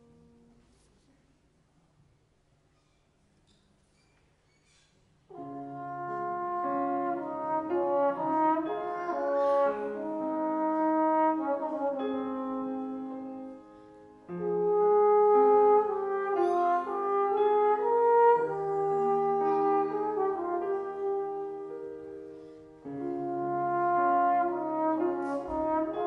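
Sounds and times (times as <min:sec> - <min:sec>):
slide trombone melody: 0:05.3 - 0:26.0.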